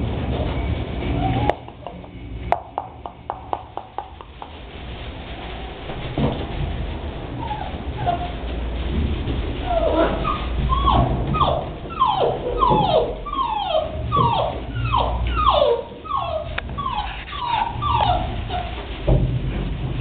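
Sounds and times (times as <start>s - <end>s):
puppy whimpering: 1.2s - 1.9s, 7.4s - 8.4s, 9.6s - 19.0s.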